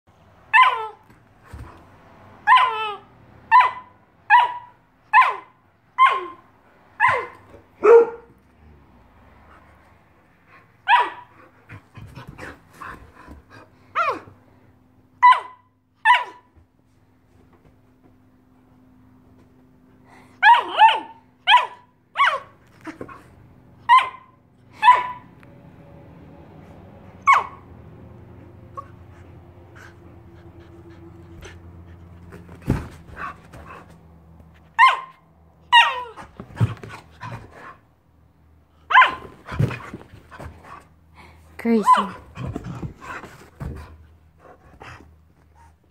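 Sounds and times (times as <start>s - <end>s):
dog yipping: 0.5s - 1.0s, 2.4s - 6.4s, 7.0s - 8.3s, 10.9s - 11.3s, 15.2s - 16.5s, 20.4s - 22.5s, 23.8s - 25.3s, 27.2s - 27.6s, 34.8s - 36.3s, 38.9s - 39.4s.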